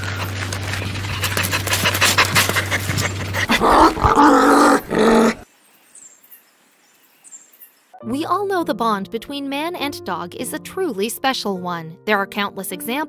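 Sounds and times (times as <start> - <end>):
dog panting: 0.0 - 4.3.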